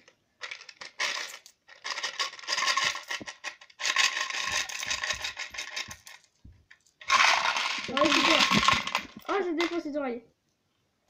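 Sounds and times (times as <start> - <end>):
coins rattling in money box: 0.4 - 6.3, 7.0 - 9.8.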